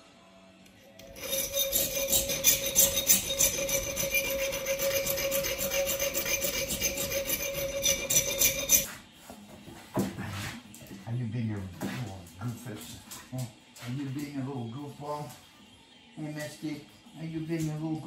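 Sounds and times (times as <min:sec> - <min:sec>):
hand file rasping on steel: 0:01.0 - 0:09.0.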